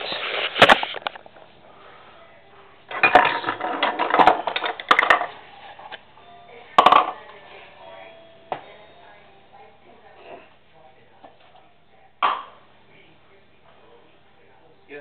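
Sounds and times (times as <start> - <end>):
utensils and dishes clattering: 2.9 - 6.0, 6.7 - 8.0.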